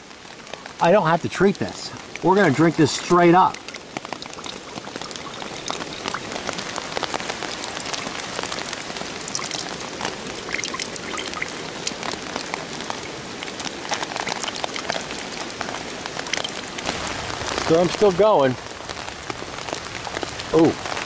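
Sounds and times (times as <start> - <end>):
heavy rain on poncho and leaves: 0.0 - 21.0
water dripping into metal cups: 1.3 - 16.9.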